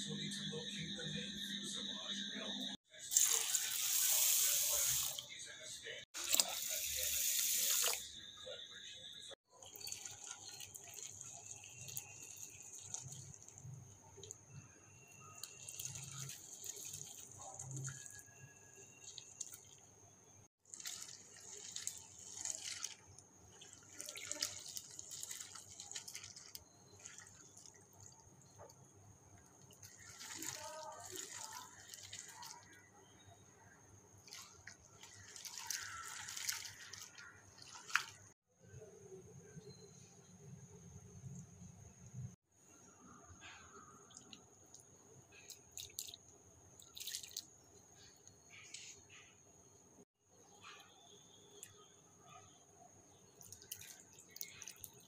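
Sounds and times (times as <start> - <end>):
water sloshing in a steel bowl: 9.5 - 20.0, 20.6 - 33.3, 34.1 - 38.4, 43.2 - 49.3, 53.3 - 55.0.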